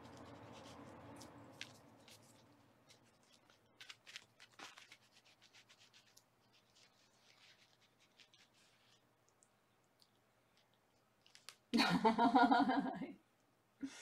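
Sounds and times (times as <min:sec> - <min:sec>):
faint scratching and rustling: 0:00.0 - 0:09.4.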